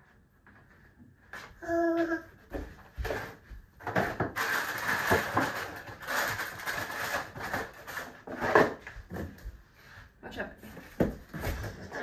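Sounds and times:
packing items rustling: 3.0 - 9.4.

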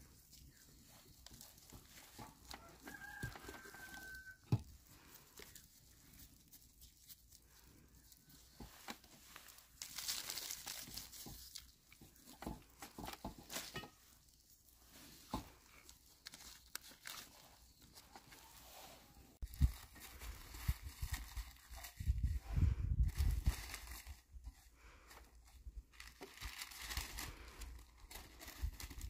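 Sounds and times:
rustling handling sounds: 0.0 - 29.0
faint rooster crowing: 2.4 - 4.7.

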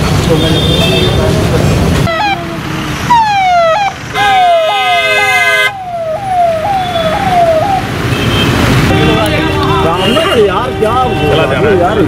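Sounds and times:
steady vehicle horn: 4.1 - 5.7
electronic siren sweeps: 5.6 - 7.9.

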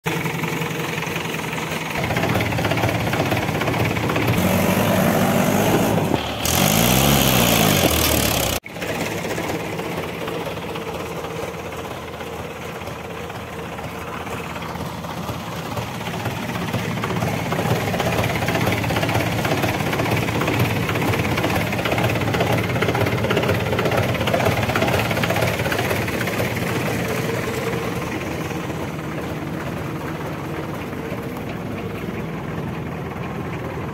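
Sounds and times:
diesel engines running: 0.0 - 33.9.

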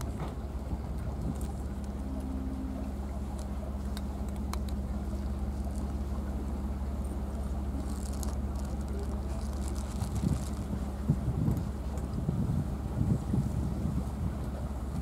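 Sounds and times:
steady low hum: 0.0 - 15.0
cats crunching kibble: 7.7 - 10.8.

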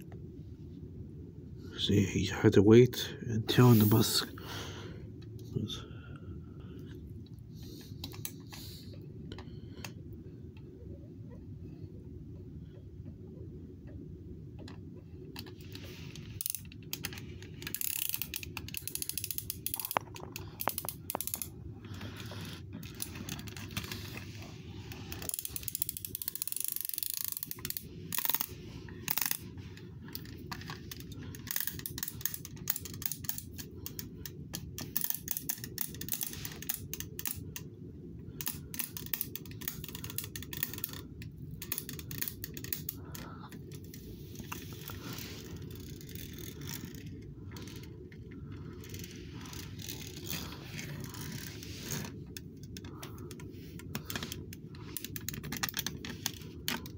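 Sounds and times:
steady low hum: 0.0 - 56.9.

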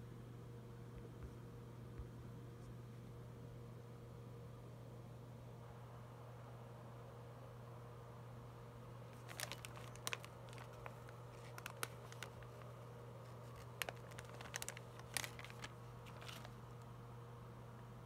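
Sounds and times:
plastic crinkling and clicks: 9.2 - 12.7, 13.3 - 16.6.

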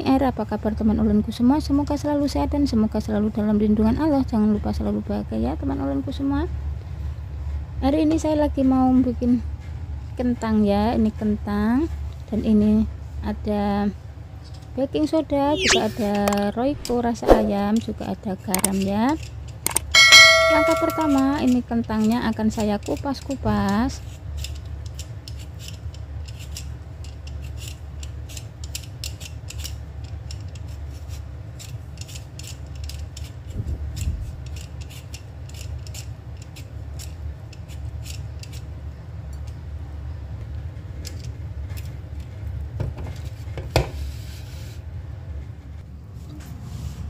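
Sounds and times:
peeler scraping potato: 21.9 - 38.7.

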